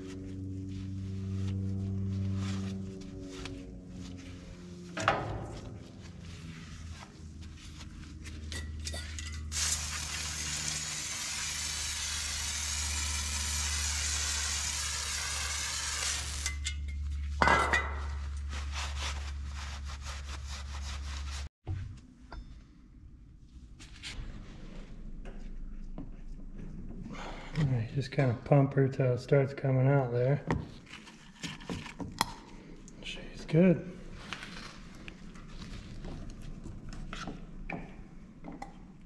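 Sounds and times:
scraping and clinking of tools: 8.3s - 9.6s.

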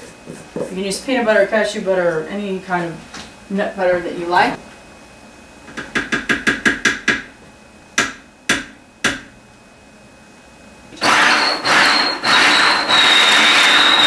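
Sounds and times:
food processor motor whirring: 10.9s - 14.0s.

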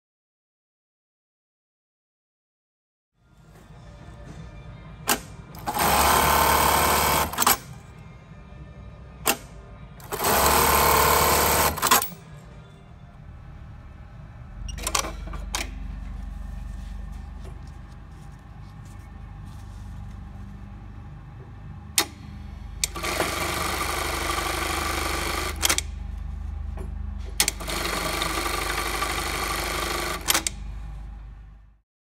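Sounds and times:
sewing machine stitching: 5.1s - 7.7s, 10.0s - 12.2s, 22.8s - 25.9s, 27.4s - 30.6s
sharp machine clicks: 5.1s - 7.7s, 10.0s - 12.2s, 22.8s - 25.9s
low steady hum: 12.1s - 23.0s.

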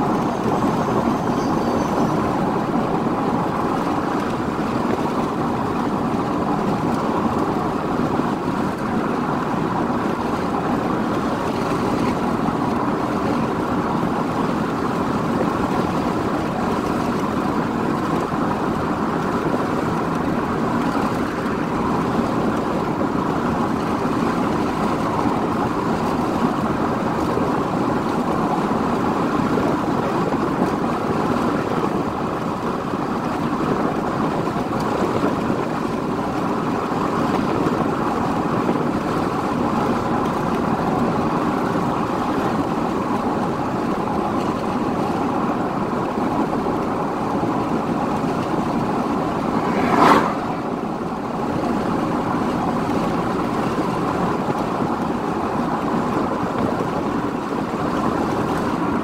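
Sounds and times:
car road and wind noise: 0.0s - 59.0s
freight train rolling on track: 47.2s - 53.0s.

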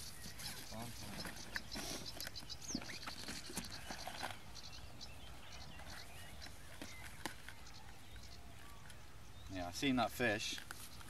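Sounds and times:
rustles: 0.0s - 11.0s.

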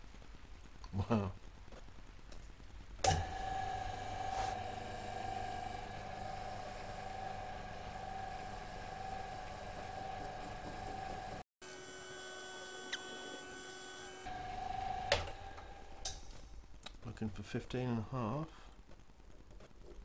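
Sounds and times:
metal lathe motor whine: 3.1s - 16.0s.

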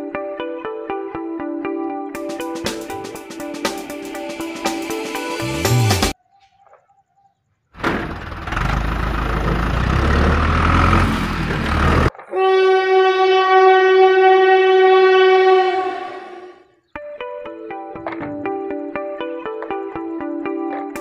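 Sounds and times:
long horn blast: 12.3s - 16.6s.

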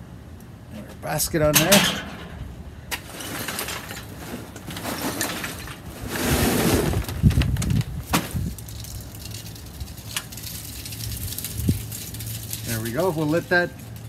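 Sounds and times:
chimney starter clattering on grate: 1.4s - 5.9s.

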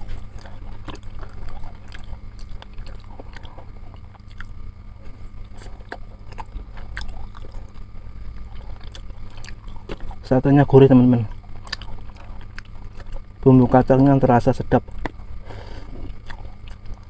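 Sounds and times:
person biting and chewing: 0.0s - 10.3s, 11.3s - 13.8s, 14.8s - 17.0s
steady low hum: 0.0s - 17.0s
wet mouth clicks: 11.6s - 13.3s.

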